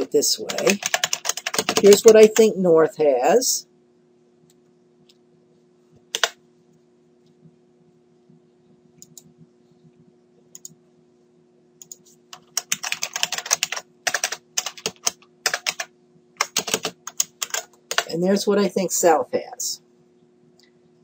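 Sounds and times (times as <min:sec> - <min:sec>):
faint steady hum: 0:00.0 - 0:21.0
typing on keyboard: 0:00.4 - 0:02.4, 0:06.1 - 0:06.4, 0:11.8 - 0:18.1.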